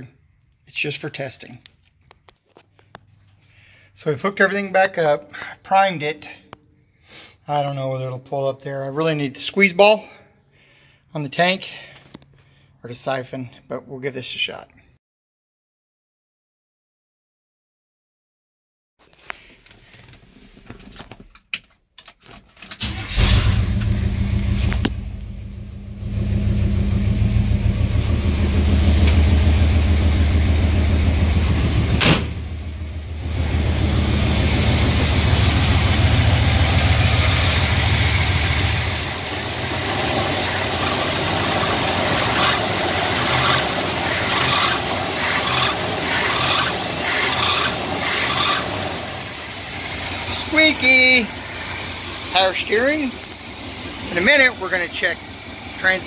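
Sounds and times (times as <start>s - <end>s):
engine starting and running: 22.3s - 56.0s
engine revving in quick blips: 26.0s - 48.8s.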